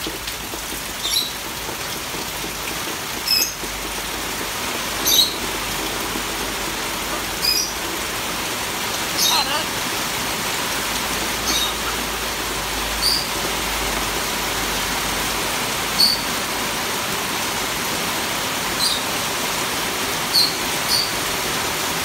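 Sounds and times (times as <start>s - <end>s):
parrot squeaks: 7.4s - 7.7s, 9.2s - 9.6s, 11.5s - 11.8s, 13.0s - 13.3s, 16.0s - 16.3s, 20.3s - 21.1s.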